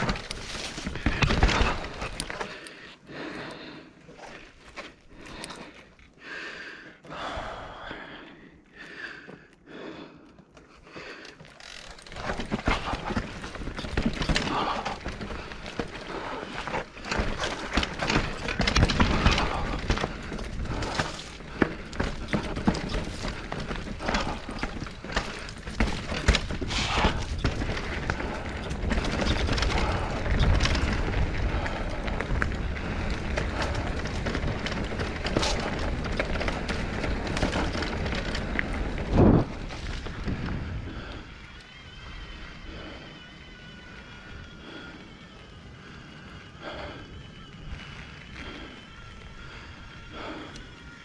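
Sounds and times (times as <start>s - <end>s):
wind buffeting microphone: 12.3s - 43.5s.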